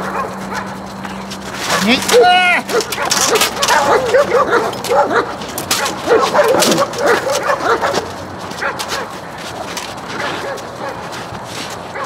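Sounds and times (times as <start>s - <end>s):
dog yipping and whining: 1.7s - 8.0s.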